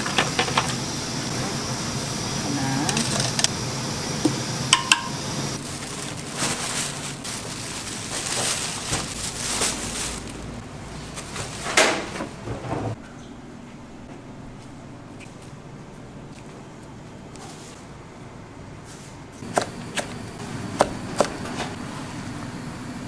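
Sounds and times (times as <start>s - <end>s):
scraping and rustling strokes: 5.6s - 12.3s.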